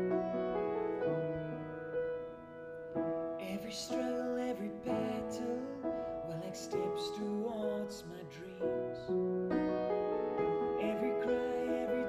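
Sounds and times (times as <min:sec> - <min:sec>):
upright piano chords: 0:00.0 - 0:12.0
man singing: 0:03.4 - 0:09.2, 0:10.8 - 0:12.0.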